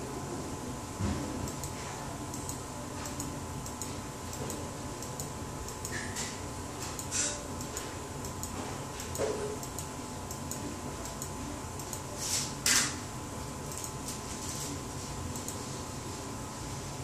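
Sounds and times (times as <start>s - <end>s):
light ticking clicks: 1.5s - 5.9s, 7.0s - 12.0s.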